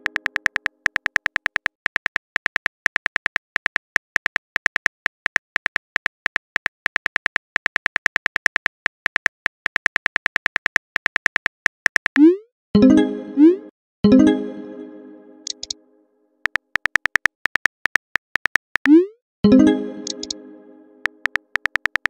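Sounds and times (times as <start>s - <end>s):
phone keyboard typing taps: 0.0s - 12.2s, 15.5s - 15.8s, 16.4s - 19.0s, 20.0s - 20.4s, 21.0s - 22.0s.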